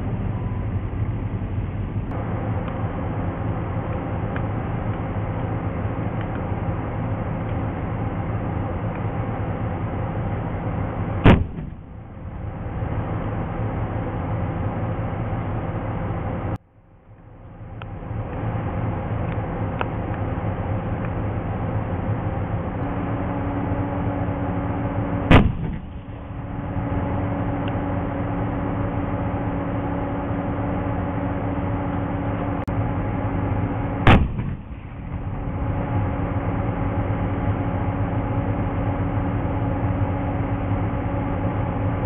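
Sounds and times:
tank diesel engine running: 0.0 - 42.0
tank gun blast: 10.8 - 13.5, 22.9 - 27.9, 33.8 - 36.3.

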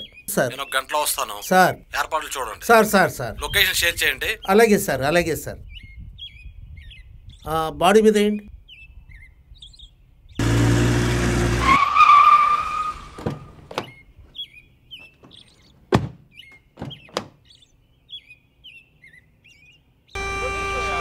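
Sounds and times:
small birds chirping: 0.0 - 10.5, 13.2 - 21.0
sharp knocks: 15.9 - 17.4.

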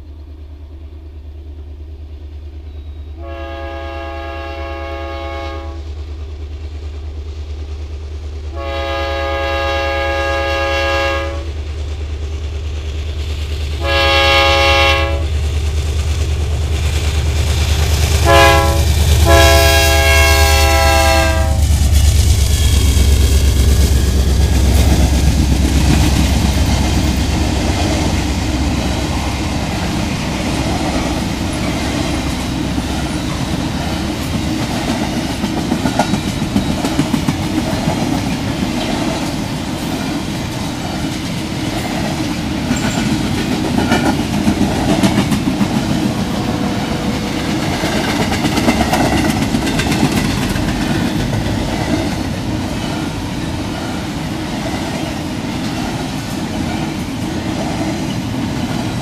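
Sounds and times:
freight train wheels rumbling: 0.0 - 59.0
wheels clicking over rail joints: 21.6 - 59.0.

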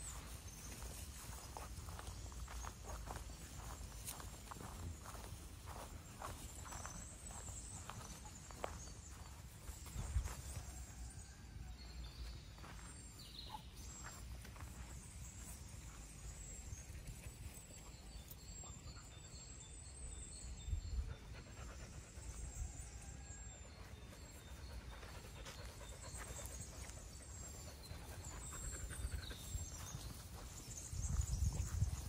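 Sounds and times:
dog panting: 24.0 - 29.9.

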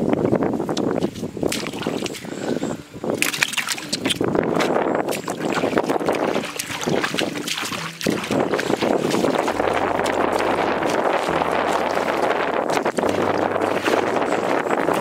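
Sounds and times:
water splashing: 0.9 - 15.0.

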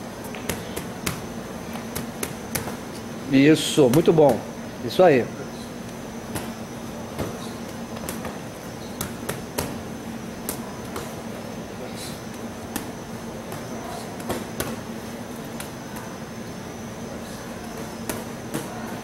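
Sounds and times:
steady low hum: 0.0 - 19.0
boxing gloves hitting mitts: 0.3 - 2.9, 3.6 - 4.5, 6.2 - 12.1, 12.7 - 16.2, 17.6 - 19.0.

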